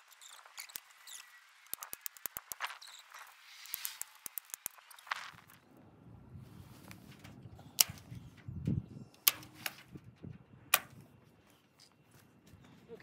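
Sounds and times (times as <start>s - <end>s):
sharp clicks: 0.1s - 5.6s, 9.1s - 9.8s.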